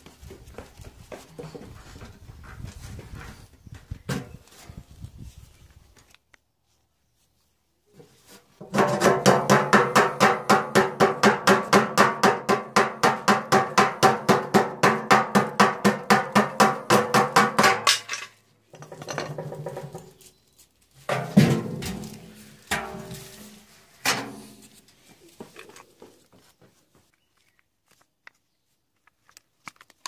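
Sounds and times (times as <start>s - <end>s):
metal drum clattering: 8.6s - 20.1s, 21.1s - 24.4s
hammer tapping metal drum: 8.7s - 18.1s
loud metal drum clang: 21.1s - 23.2s.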